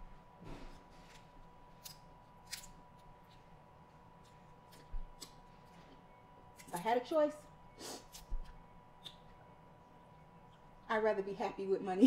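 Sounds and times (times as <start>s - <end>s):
shrimp being peeled and eaten: 1.0s - 7.0s, 8.0s - 9.4s.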